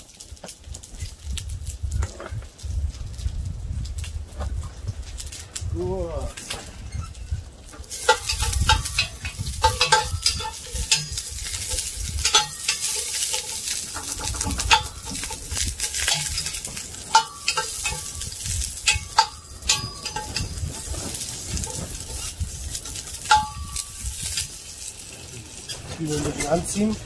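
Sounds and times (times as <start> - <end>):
wind rumble on microphone: 0.0 - 13.1, 13.7 - 27.0
onions sizzling in a pot: 7.2 - 27.0
utensil scraping a pot: 7.9 - 27.0.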